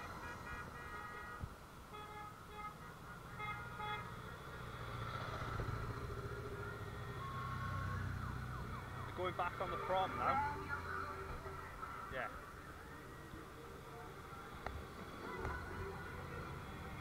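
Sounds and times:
low trike engine rumble: 4.1 - 9.3.

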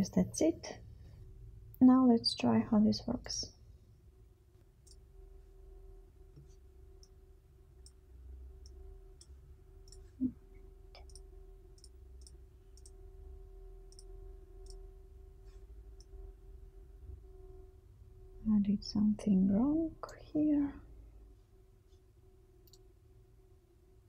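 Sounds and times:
steady low hum: 0.0 - 24.0
computer mouse clicking: 11.0 - 13.0, 13.9 - 14.8.

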